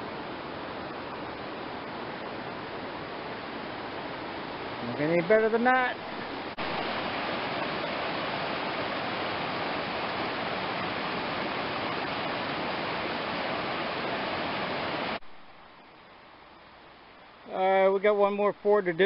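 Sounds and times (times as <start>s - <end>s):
river rapids rushing over rocks: 0.2s - 15.2s.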